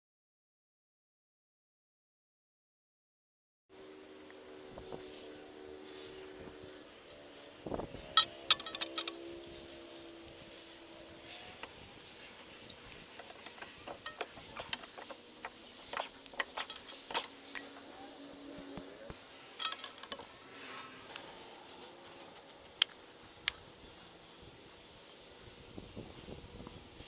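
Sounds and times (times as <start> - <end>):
metal tools clinking: 8.2 - 9.2, 12.5 - 15.2, 15.9 - 17.9, 19.5 - 20.3.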